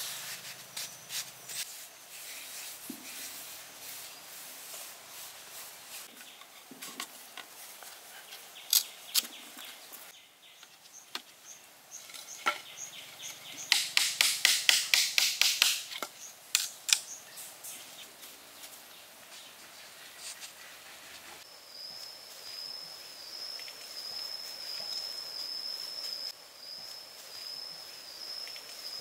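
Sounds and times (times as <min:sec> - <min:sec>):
bamboo slats clicking: 0:13.6 - 0:17.1.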